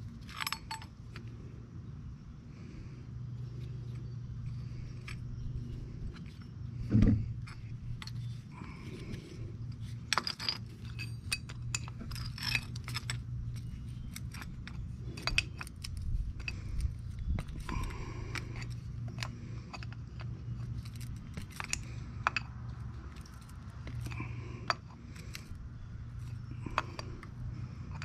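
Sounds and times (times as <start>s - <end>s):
metal tools clinking: 0.0s - 1.3s, 7.3s - 28.0s
steady low hum: 0.0s - 28.0s
dull thump: 6.9s - 7.3s.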